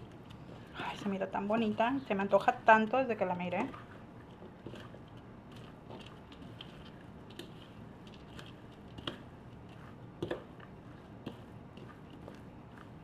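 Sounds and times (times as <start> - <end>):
salad rustling in bowl: 2.9 - 13.0.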